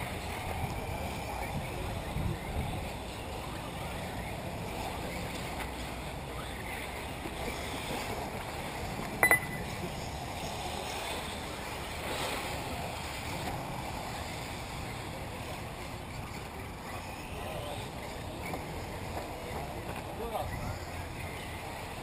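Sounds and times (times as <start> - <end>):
wind: 0.0 - 22.0
loud double beep: 9.2 - 9.7.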